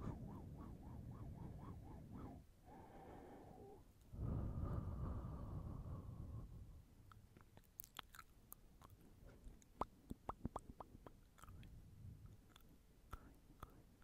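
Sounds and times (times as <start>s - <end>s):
mouth clicks and lip smacks: 7.0s - 13.9s.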